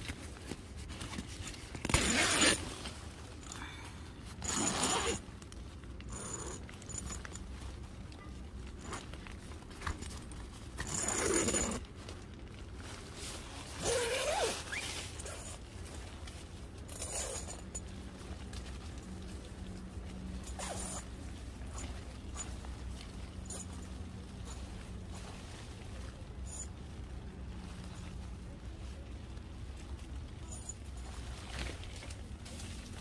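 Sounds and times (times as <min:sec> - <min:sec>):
zipper rasping: 0:01.8 - 0:02.8, 0:04.4 - 0:05.2, 0:06.0 - 0:07.3, 0:10.8 - 0:11.9, 0:13.7 - 0:15.6, 0:16.9 - 0:17.8, 0:20.4 - 0:21.1.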